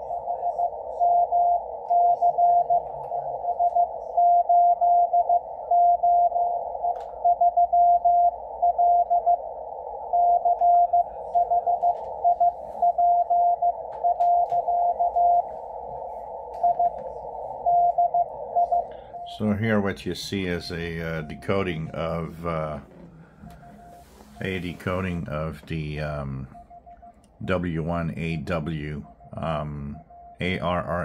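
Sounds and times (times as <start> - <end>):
radio band hiss: 9.2 - 31.0
morse code tone: 10.0 - 31.0.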